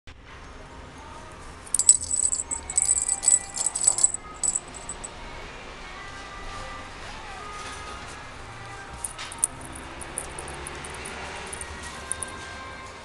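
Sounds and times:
jingling toy rattle shaken: 1.7s - 5.1s, 9.0s - 12.4s.

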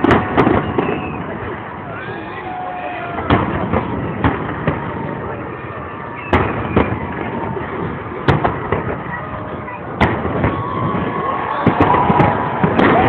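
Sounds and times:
light firework pops: 0.0s - 1.6s, 6.1s - 9.2s, 10.0s - 13.0s
fireworks bangs: 0.0s - 13.0s.

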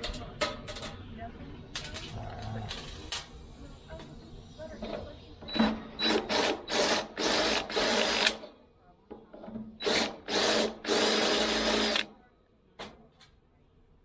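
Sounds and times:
cordless drill drilling into steel: 6.0s - 8.4s, 9.8s - 12.1s.

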